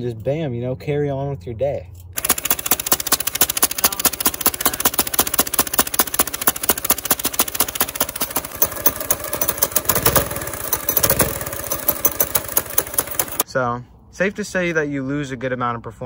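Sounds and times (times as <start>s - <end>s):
go-kart engine exhaust pops: 2.8s - 13.4s.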